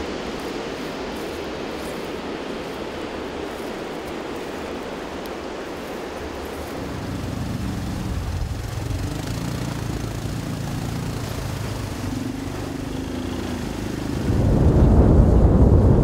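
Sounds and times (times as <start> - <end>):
all-terrain vehicle engine driving: 6.2 - 16.0.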